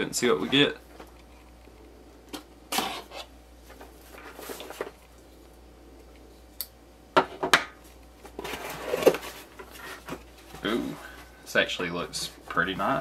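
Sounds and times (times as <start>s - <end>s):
cardboard rustling: 2.8s - 5.0s, 8.2s - 11.3s
cardboard box scraping: 8.4s - 11.0s.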